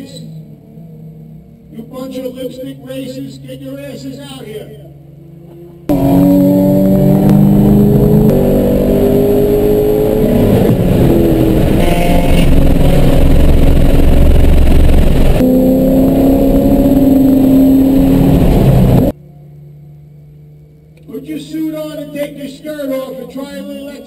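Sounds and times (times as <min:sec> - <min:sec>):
car engine accelerating hard: 0:00.0 - 0:19.2.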